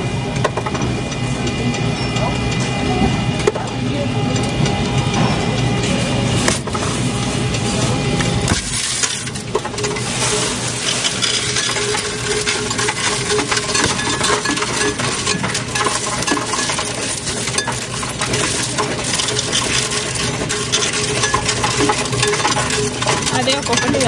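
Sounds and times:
coins clattering on metal tray: 8.4 - 24.0.

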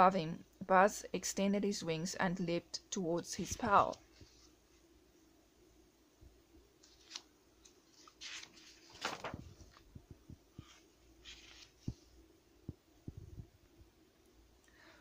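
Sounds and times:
book pages turning: 6.8 - 10.0, 10.6 - 12.1.

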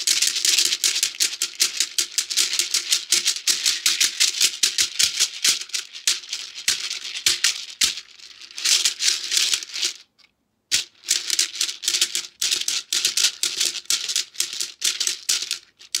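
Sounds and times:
shekere beads rattling: 0.0 - 10.1.

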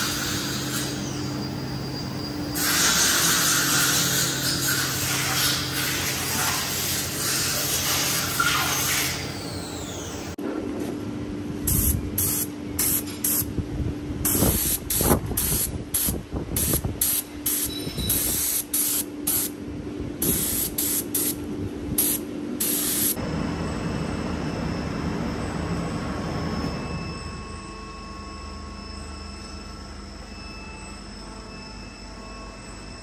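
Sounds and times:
steady hum: 9.1 - 33.0
spray gun hissing bursts: 11.7 - 13.5, 14.3 - 19.5, 20.2 - 21.4, 22.0 - 23.2.

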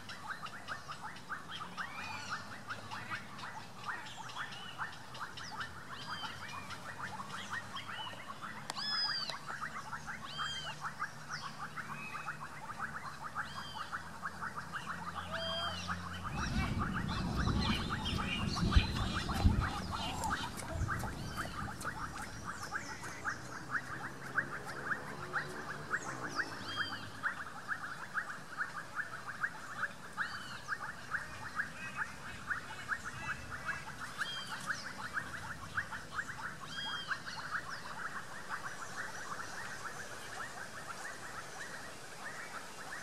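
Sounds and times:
chorus of clicking calls: 0.0 - 43.0
small birds chirping: 0.0 - 43.0.

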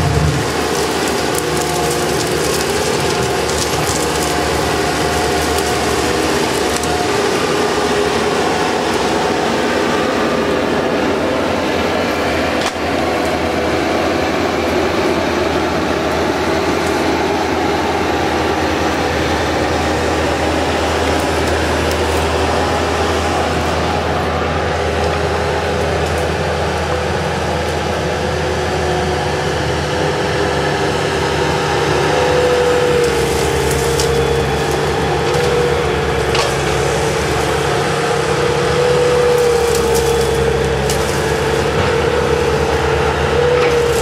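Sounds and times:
diesel engine under load: 0.0 - 44.0.

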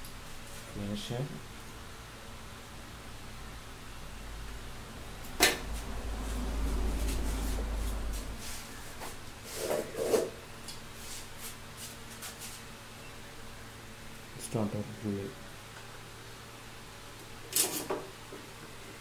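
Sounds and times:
low rumble: 4.9 - 8.4.

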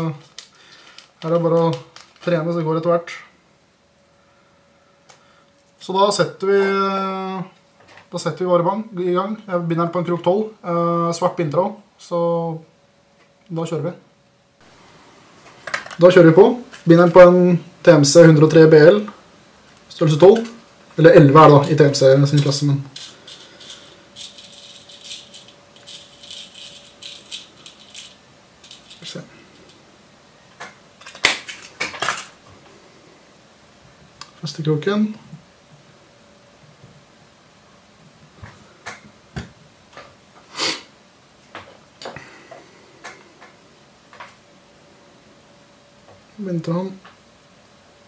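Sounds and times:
small tools clicking and tapping: 22.4 - 29.7
hooks rattling in box: 22.9 - 29.1.

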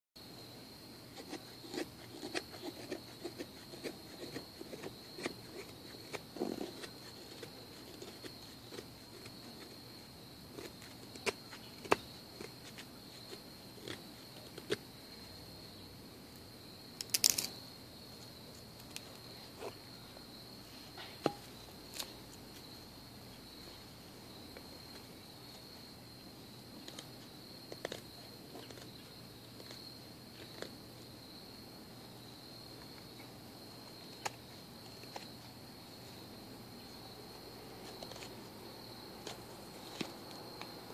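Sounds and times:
crickets droning: 0.2 - 40.9
knife scraping wooden stick: 1.1 - 9.8.

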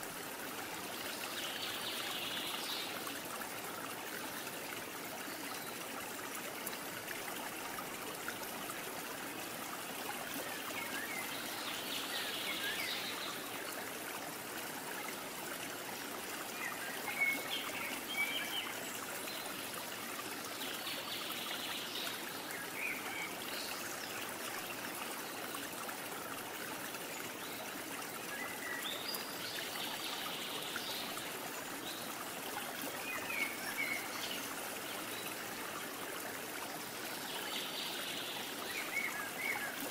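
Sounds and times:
stream trickling: 0.0 - 39.9.

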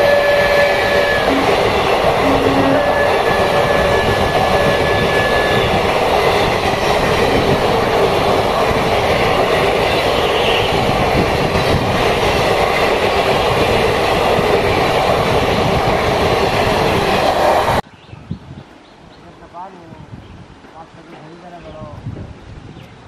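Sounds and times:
train wheels rumbling on rails: 0.0 - 17.8.

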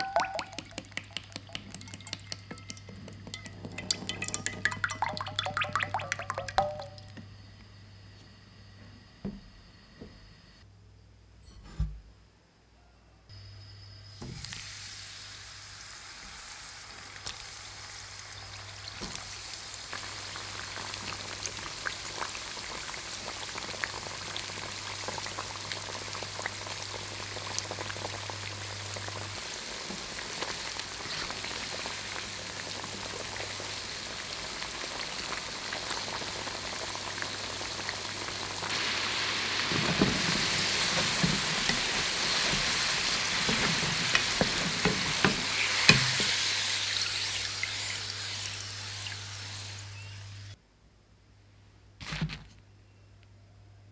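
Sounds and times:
fries sizzling in oil: 0.0 - 7.2, 13.9 - 50.6
strainer knocking in pan: 39.6 - 46.4.

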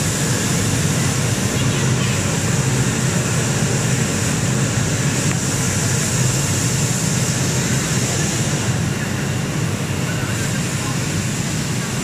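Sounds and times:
cutting machine humming and hissing: 0.0 - 12.0.

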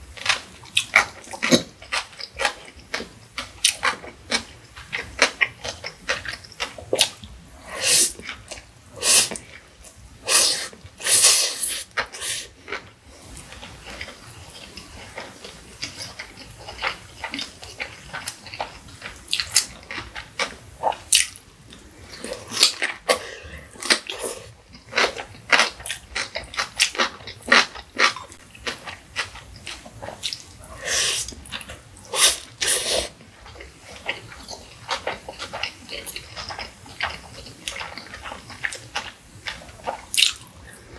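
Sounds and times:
crunching and wet chewing: 0.1 - 40.9
slurping noodles: 32.1 - 33.2.

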